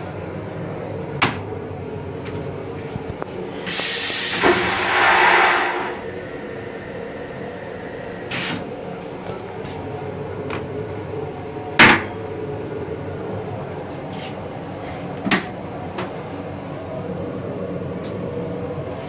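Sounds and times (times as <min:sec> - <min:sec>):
railcar running rumble: 0:00.0 - 0:19.0
toilet flushing: 0:03.4 - 0:08.9.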